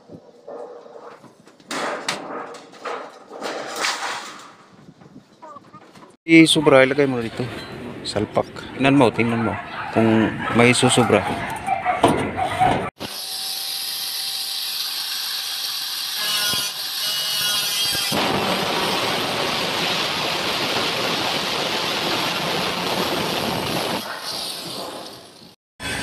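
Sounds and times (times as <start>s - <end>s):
angle grinder cutting metal: 13.0s - 18.2s.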